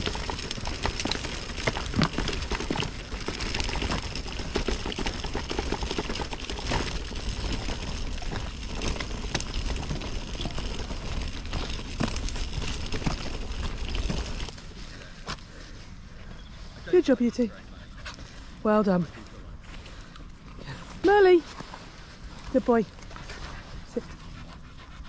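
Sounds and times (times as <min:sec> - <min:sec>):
footsteps on gravel: 0:00.0 - 0:15.6
wheels crunching on gravel: 0:00.0 - 0:24.3.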